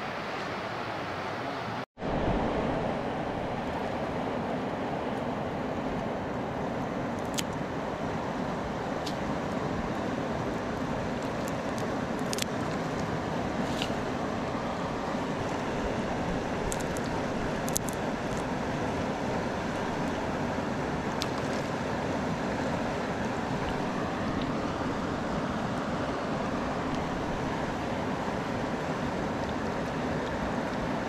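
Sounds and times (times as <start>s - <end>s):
river water rushing: 0.0s - 31.0s
scissors snipping: 17.6s - 18.4s.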